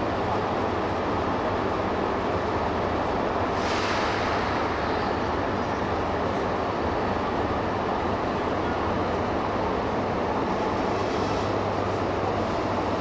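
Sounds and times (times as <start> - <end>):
train mechanical noise: 0.0 - 13.0
brief hiss: 3.6 - 4.6.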